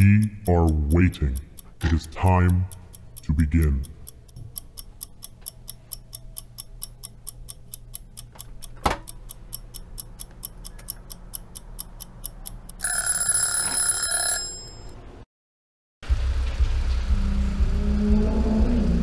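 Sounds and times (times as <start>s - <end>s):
clock ticking: 0.0s - 14.6s.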